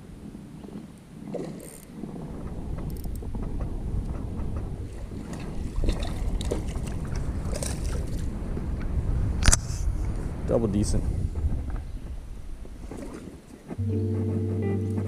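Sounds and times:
water and wind rumble: 0.0s - 15.0s.

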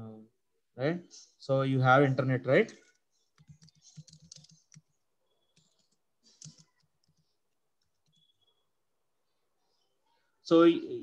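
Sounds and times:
computer keyboard keystrokes: 3.4s - 4.9s, 5.6s - 7.2s.

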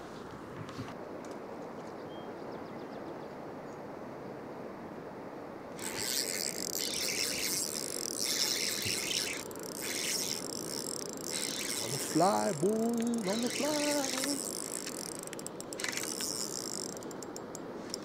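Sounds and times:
wind: 0.0s - 18.0s
river water: 5.4s - 18.0s
fishing reel buzzing: 5.8s - 18.0s.

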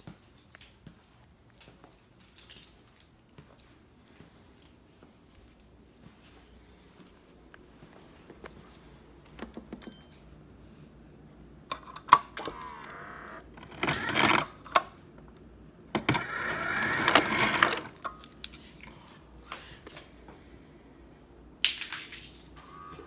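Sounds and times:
ice dispenser motor: 12.1s - 15.0s, 16.0s - 18.4s.

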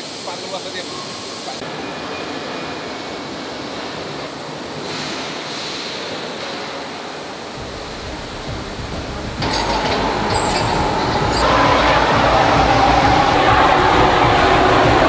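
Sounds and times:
machinery rushing roar: 7.5s - 15.0s.

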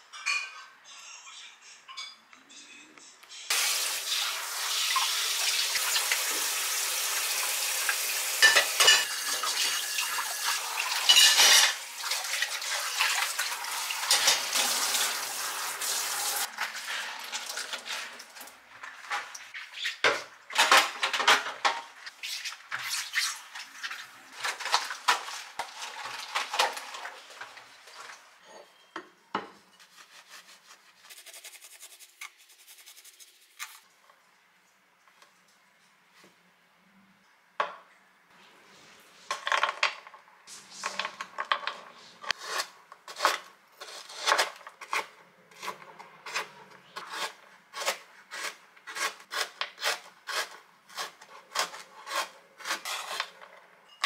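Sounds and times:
dishes and cutlery clattering: 0.0s - 0.8s, 1.9s - 2.3s, 8.4s - 10.0s, 11.0s - 11.9s, 14.0s - 14.7s
tap water running into sink: 3.5s - 11.1s, 11.7s - 18.4s.

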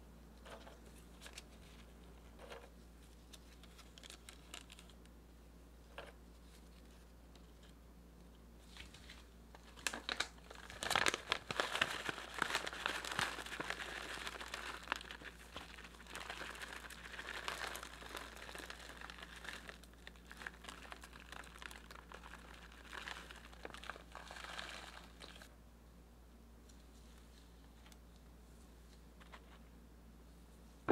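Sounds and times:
plastic bag crinkling: 3.4s - 4.9s, 8.7s - 25.5s.

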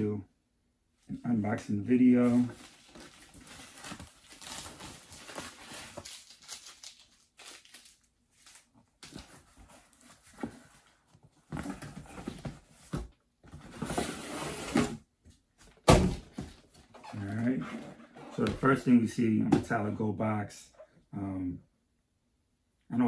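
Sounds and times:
cardboard box scraping and rustling: 13.6s - 15.0s.

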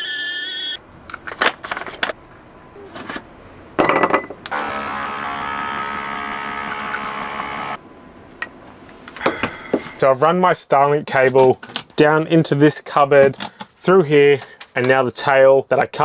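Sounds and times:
clink: 3.8s - 4.4s
water pump humming: 4.4s - 7.8s.

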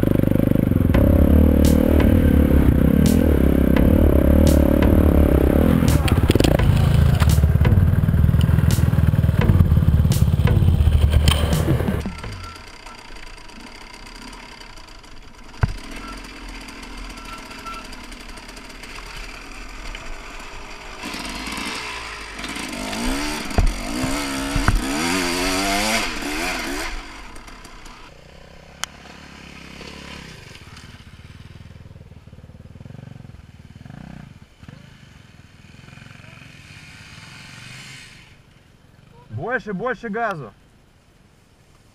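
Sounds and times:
dirt bike engine revving: 0.0s - 38.4s
sharp knocks: 8.7s - 12.5s, 15.6s - 16.0s, 22.9s - 26.0s.

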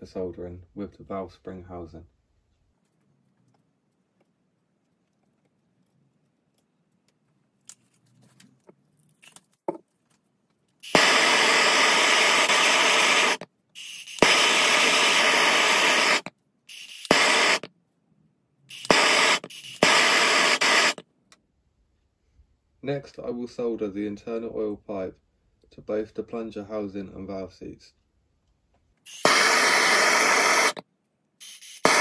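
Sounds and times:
blowtorch hissing: 10.8s - 17.7s, 18.7s - 21.0s, 29.1s - 30.8s, 31.4s - 32.0s
blowtorch ignition click: 10.9s - 13.4s, 14.1s - 17.7s, 18.7s - 21.0s, 29.1s - 30.8s, 31.8s - 32.0s.

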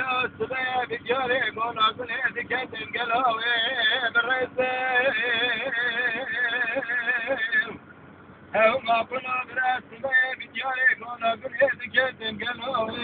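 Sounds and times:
man singing unaccompanied: 0.0s - 7.8s, 8.5s - 13.0s
low vehicle hum: 0.0s - 13.0s.

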